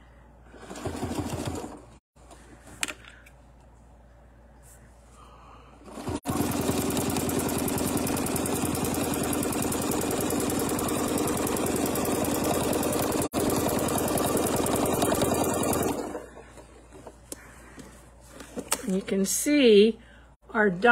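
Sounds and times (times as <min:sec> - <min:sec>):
sewing machine stitching: 0:00.5 - 0:02.0, 0:05.8 - 0:16.4.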